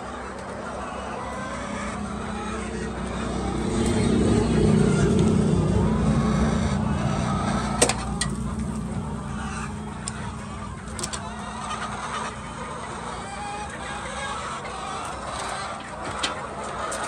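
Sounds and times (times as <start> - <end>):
hens clucking: 0.0 - 17.0
low rumble: 1.0 - 14.6.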